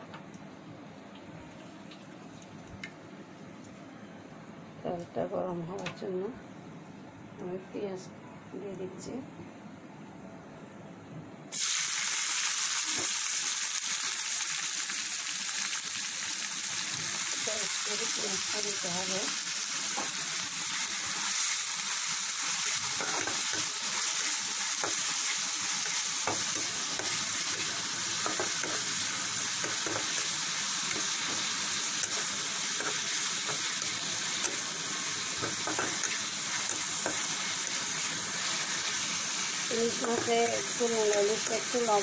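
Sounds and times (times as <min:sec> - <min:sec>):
onions sizzling in oil: 0:11.5 - 0:42.0.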